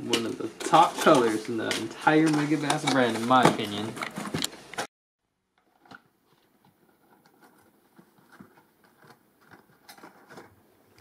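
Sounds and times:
person's voice: 0.0 - 4.0.

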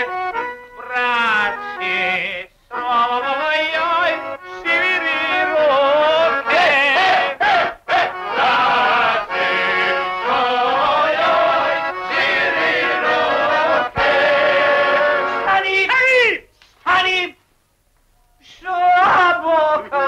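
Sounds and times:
group of men singing: 1.2 - 15.5.

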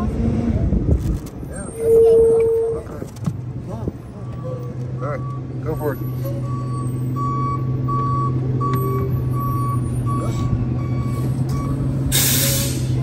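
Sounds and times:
reverse alarm beeping: 4.2 - 11.9.

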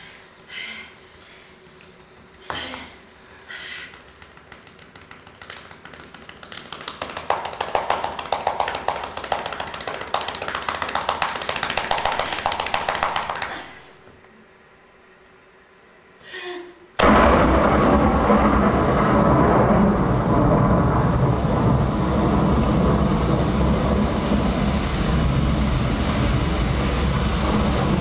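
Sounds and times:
rapid dense tapping clicks: 3.8 - 13.5.

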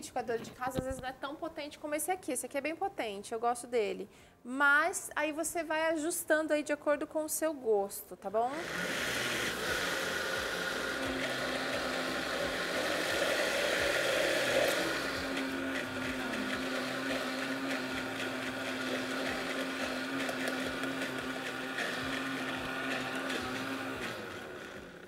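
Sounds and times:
blender running: 8.5 - 25.0.

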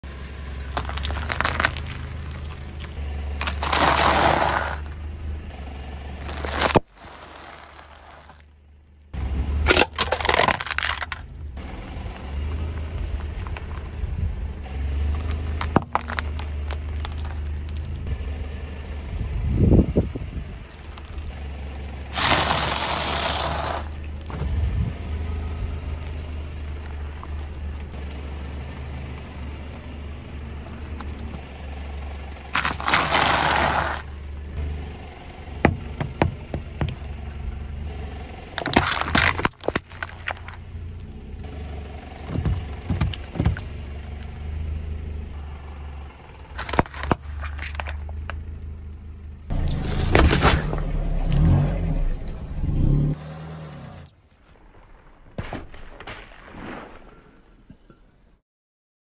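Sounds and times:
car tyre crushing food: 0.2 - 8.5, 9.6 - 11.4, 15.0 - 18.2, 20.7 - 24.2, 32.3 - 34.6, 35.5 - 37.5, 38.4 - 44.6, 46.4 - 48.7, 49.5 - 53.2.

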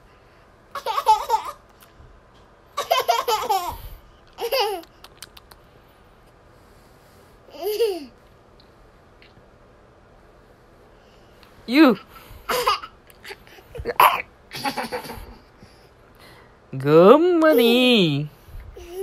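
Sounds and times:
toddler girl laughing: 0.7 - 1.6, 2.8 - 5.0, 7.5 - 8.2, 12.5 - 15.5, 18.8 - 19.0.

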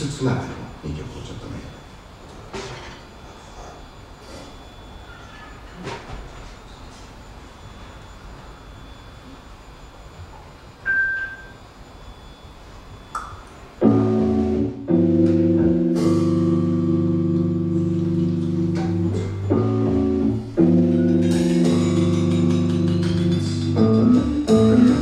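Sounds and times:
electric keyboard chords: 13.8 - 25.0.

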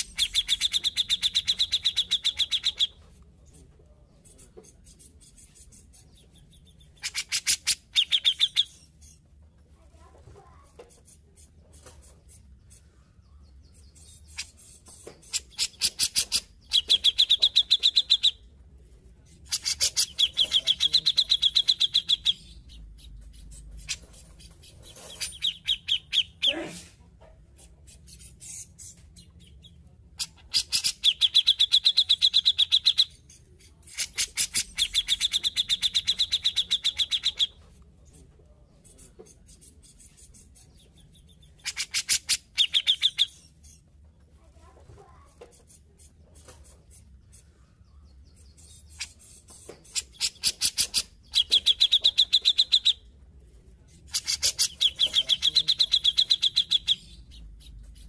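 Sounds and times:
bird chattering song: 0.0 - 26.7, 27.5 - 58.0
soft bird calls: 0.0 - 58.0.

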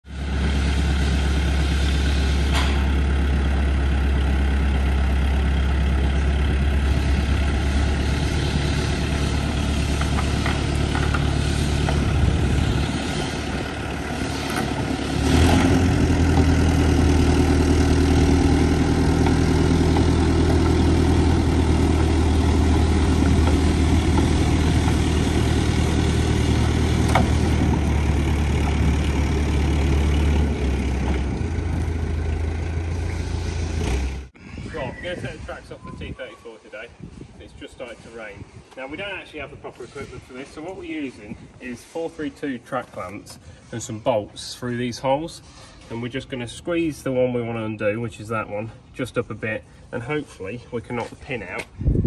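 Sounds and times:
diesel engine running: 0.0 - 34.4.

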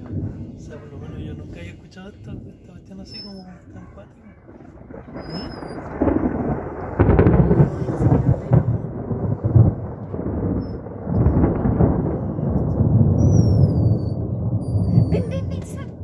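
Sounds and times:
rolling thunder: 0.0 - 16.0.

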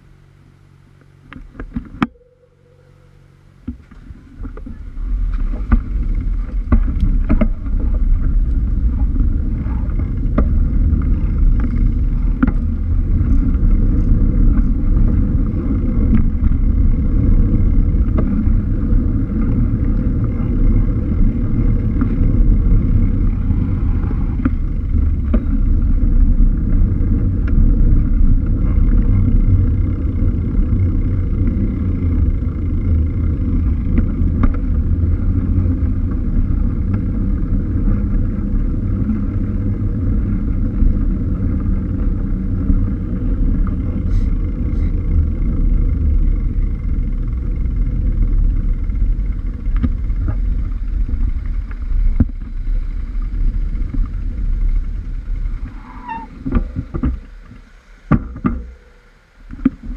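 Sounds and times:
tyre and road noise: 0.0 - 59.9
wind rumbling on microphone: 1.2 - 59.9
bike clicking over bumps: 3.1 - 59.9.

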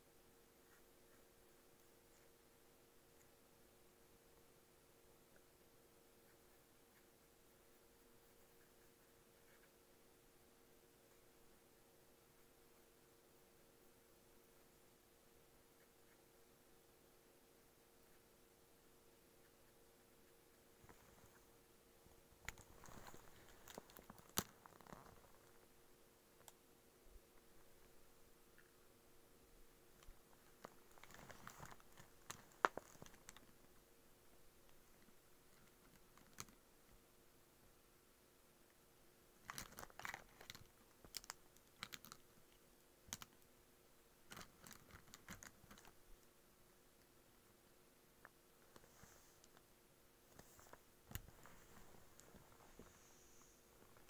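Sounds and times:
faint steady hum: 0.0 - 54.0.

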